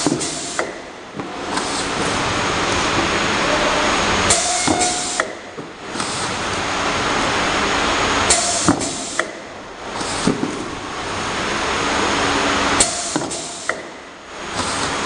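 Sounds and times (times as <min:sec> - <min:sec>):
labeling machine hissing noise: 0:03.4 - 0:05.2.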